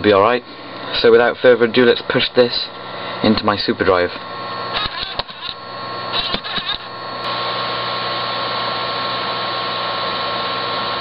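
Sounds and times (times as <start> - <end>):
disc spinning whir: 0.0 - 11.0
disc drive clicks: 4.8 - 5.6, 6.2 - 6.9.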